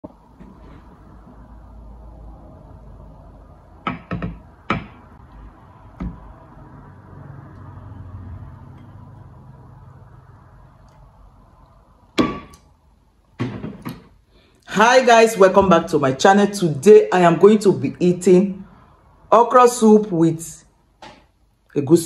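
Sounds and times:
glass bowl knocking on glass dish: 3.9 - 5.0.

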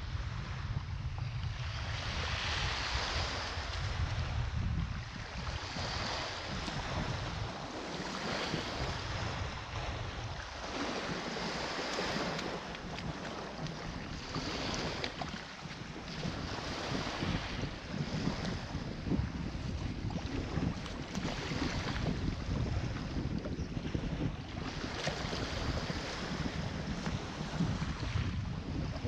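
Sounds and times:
small waves breaking on shore: 0.0 - 29.0
wind on microphone: 0.0 - 29.0.

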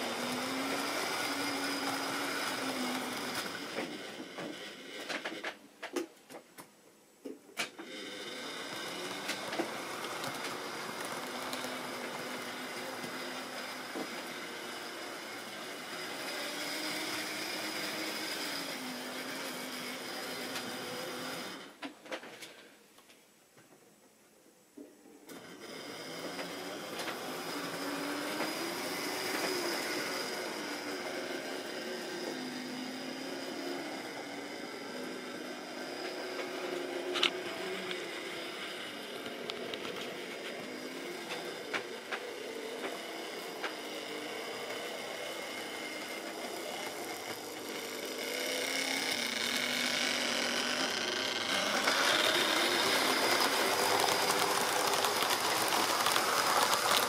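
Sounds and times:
model train motor whining: 0.0 - 6.0, 7.6 - 22.7, 25.3 - 57.0
wheels clicking over rail joints: 7.6 - 22.5, 26.1 - 31.2, 33.8 - 57.0.

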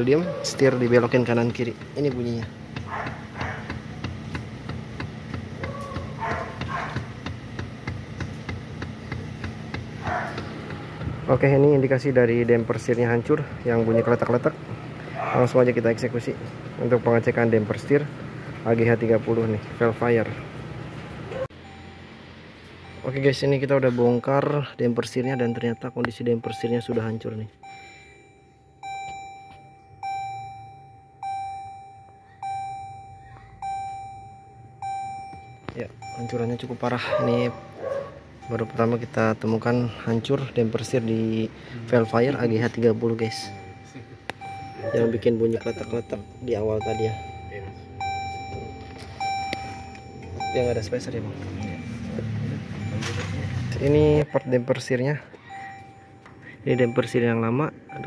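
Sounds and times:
electronic warning chime dinging: 21.6 - 58.0.

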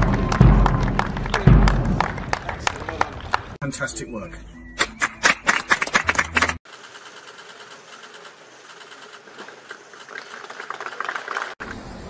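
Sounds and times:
faint continuous clapping: 0.0 - 3.6, 10.0 - 11.6
people clapping in rhythm: 0.0 - 3.6, 4.8 - 6.6, 10.5 - 11.6.

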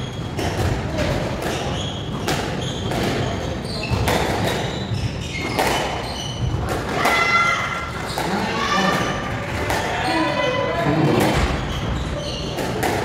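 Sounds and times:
squash ball hitting rackets and walls: 0.0 - 10.2, 11.0 - 13.0
shoes squeaking on wooden floor: 1.4 - 6.7, 10.0 - 12.8.

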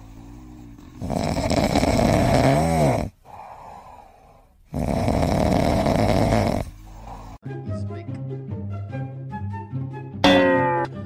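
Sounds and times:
cat snoring: 0.0 - 7.4
cat breathing: 3.0 - 7.4.

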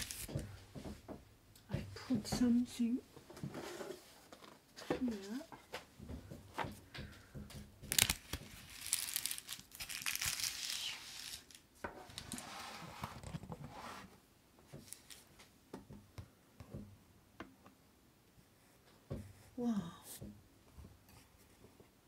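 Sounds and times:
rustling and crinkling handling: 0.0 - 15.6.

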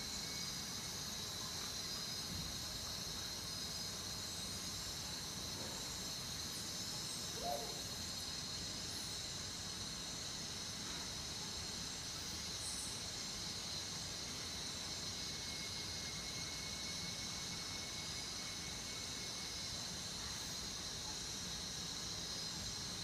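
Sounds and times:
steady ambient hiss: 0.0 - 23.0.

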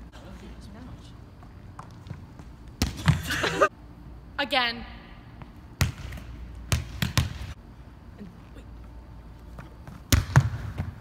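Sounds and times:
volleyball bouncing on gym floor: 1.8 - 3.4, 5.4 - 7.6, 9.8 - 11.0.

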